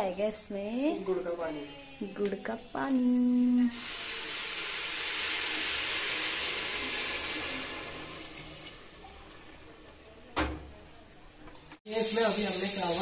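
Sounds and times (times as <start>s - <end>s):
liquid hissing in hot oil: 0.8s - 9.7s, 11.9s - 13.0s.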